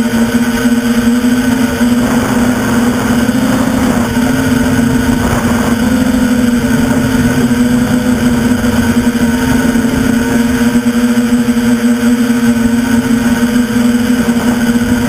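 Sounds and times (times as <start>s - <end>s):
quadcopter propellers droning: 0.0s - 15.0s.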